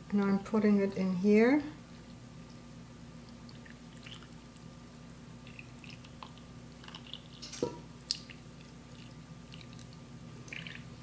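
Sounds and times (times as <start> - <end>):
liquid dripping and splashing: 3.2 - 4.7, 5.4 - 11.0.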